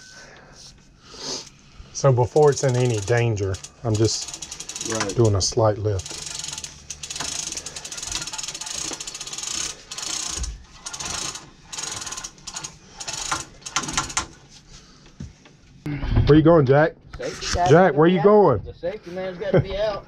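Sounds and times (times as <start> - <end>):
chain hoist ratcheting clicks: 2.0 - 14.4.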